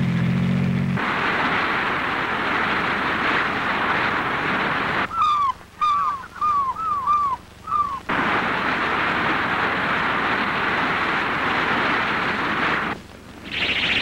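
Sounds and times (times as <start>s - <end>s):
steady rushing noise: 1.0s - 14.0s
seagull cries: 5.1s - 8.1s.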